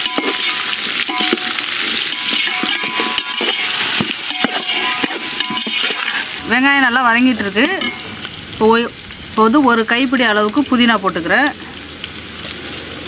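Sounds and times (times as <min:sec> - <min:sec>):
metal ladle scraping pot: 0:00.0 - 0:06.6, 0:07.6 - 0:08.2
onions sizzling in hot oil: 0:00.0 - 0:13.0.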